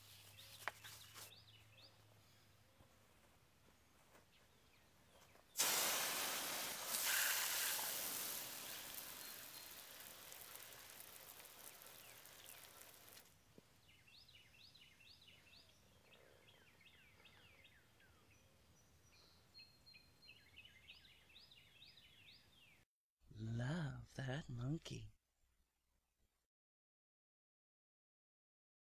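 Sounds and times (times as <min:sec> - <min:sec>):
hose water spray hissing: 0:05.6 - 0:13.3
birds chirping: 0:08.2 - 0:22.8.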